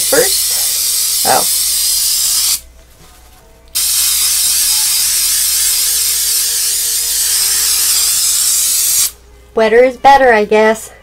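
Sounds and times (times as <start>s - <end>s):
aerosol can spraying: 0.0s - 2.6s, 3.7s - 9.2s.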